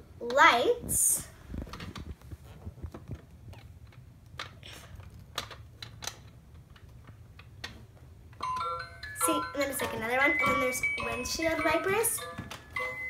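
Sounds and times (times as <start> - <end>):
plastic toy clicks and knocks: 3.0 - 8.8
electronic jingle beeping tune: 8.4 - 13.0.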